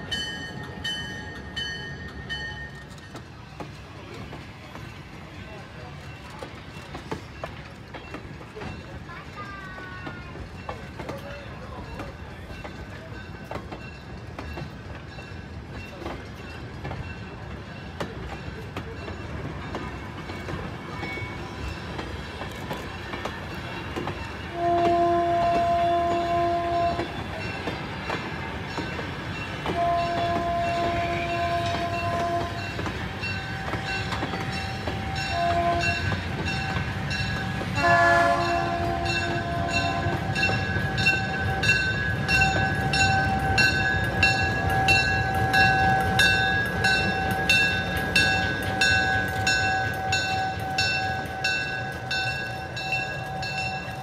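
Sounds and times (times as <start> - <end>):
diesel locomotive rumble: 0.0 - 54.0
train horn blasts: 24.5 - 27.3, 29.6 - 32.9, 35.2 - 36.4, 37.7 - 41.9
steady rhythmic ringing: 38.5 - 54.0.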